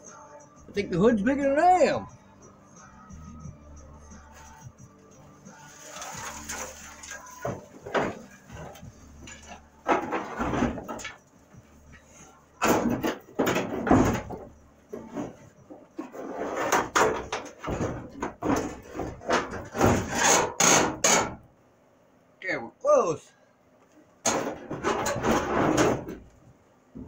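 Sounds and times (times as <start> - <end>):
metal hood scraping and knocking: 5.6 - 11.3, 11.9 - 21.5, 24.2 - 26.4.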